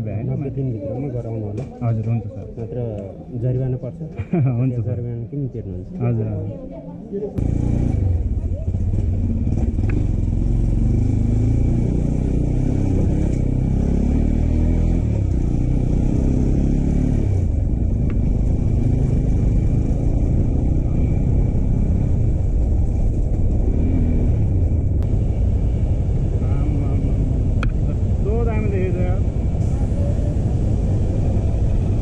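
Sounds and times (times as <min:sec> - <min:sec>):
motorcycle engine running: 0:07.4 - 0:13.9.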